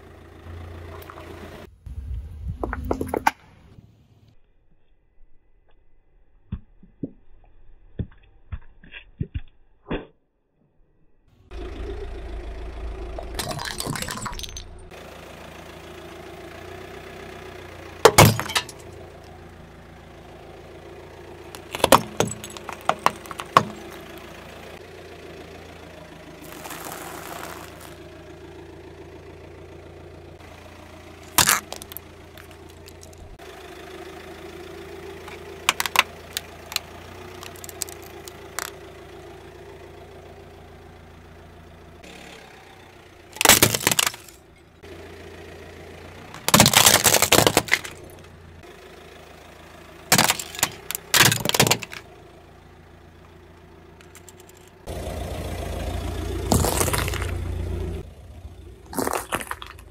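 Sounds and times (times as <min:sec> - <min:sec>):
car engine idling: 0:00.0 - 0:04.4, 0:11.3 - 0:59.9
tyre crushing brittle objects: 0:18.0 - 0:18.9, 0:21.5 - 0:24.3, 0:26.4 - 0:28.0, 0:31.2 - 0:33.4, 0:35.2 - 0:38.8, 0:43.4 - 0:44.4, 0:46.3 - 0:48.3, 0:50.1 - 0:52.0, 0:56.4 - 0:57.6, 0:58.9 - 0:59.9.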